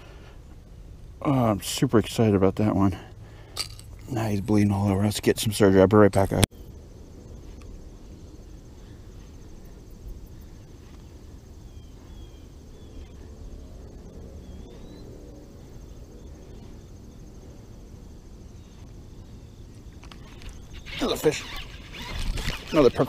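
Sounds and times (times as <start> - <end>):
pulsing insect trill: 1.2 - 23.0
bird chirps: 7.4 - 17.2, 18.5 - 23.0.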